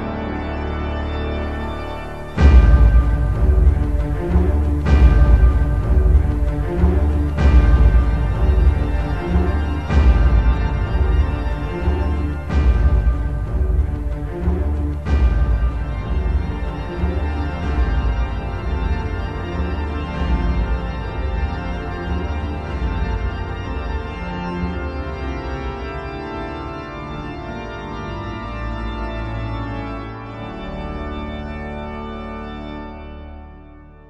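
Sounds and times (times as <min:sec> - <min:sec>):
deep bass: 0:00.0 - 0:26.3
music of sustained chords: 0:00.0 - 0:34.0.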